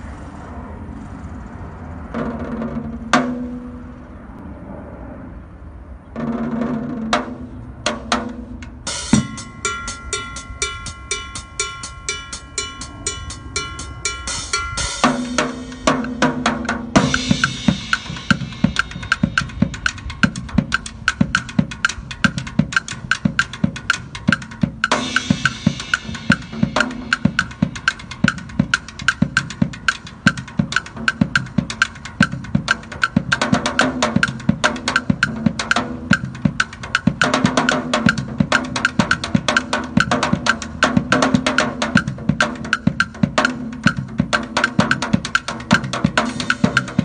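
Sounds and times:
drum kit playing a beat: 6.2s - 47.0s
cymbal crash: 8.9s - 20.1s, 25.0s - 28.1s.

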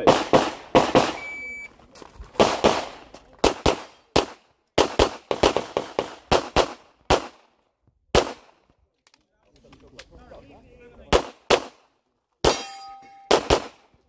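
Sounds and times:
pistol shots: 0.0s - 1.2s, 2.4s - 7.5s, 8.1s - 8.6s, 11.1s - 11.8s, 13.3s - 13.8s.

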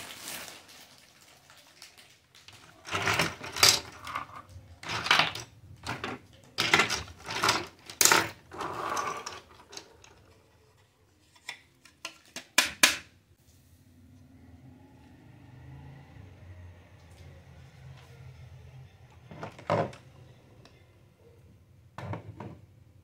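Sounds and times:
plastic toys clattering: 1.7s - 13.1s, 19.3s - 20.0s.

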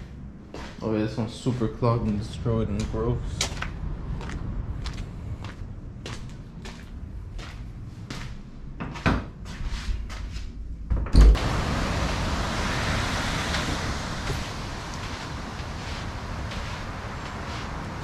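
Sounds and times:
wind: 0.0s - 18.0s
breaking surf: 11.3s - 18.0s.

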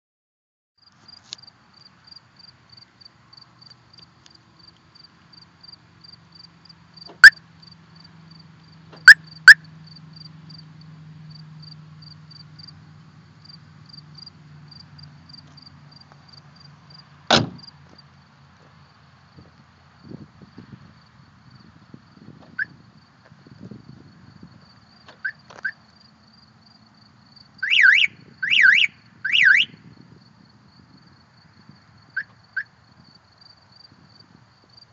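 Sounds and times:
car alarm siren chirps: 7.1s - 7.4s, 9.0s - 9.7s, 27.6s - 29.8s
car bonnet shutting thump: 17.3s - 17.6s.

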